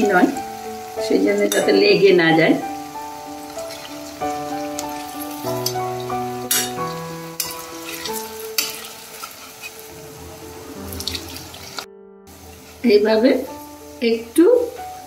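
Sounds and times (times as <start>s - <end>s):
food sizzling in hot oil: 0.0s - 15.0s
light background tune: 0.0s - 15.0s
metal spatula scraping pan: 6.5s - 9.9s.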